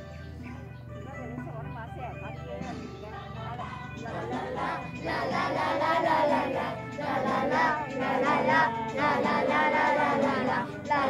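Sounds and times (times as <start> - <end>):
children and adults singing: 3.6 - 11.0.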